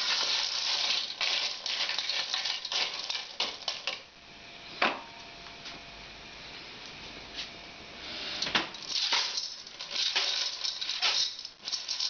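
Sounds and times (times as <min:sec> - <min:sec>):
shells rattling in metal pot: 0:00.0 - 0:04.0, 0:08.8 - 0:12.0.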